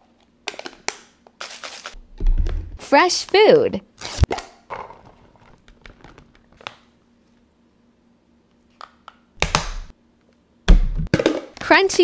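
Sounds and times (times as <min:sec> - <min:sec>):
plastic pouch crinkling: 0:01.4 - 0:02.0.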